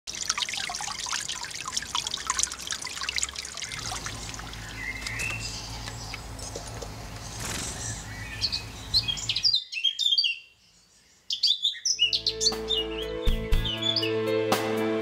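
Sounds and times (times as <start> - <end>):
water trickling over stones: 0.0 - 7.2
bird chirp: 3.6 - 14.2.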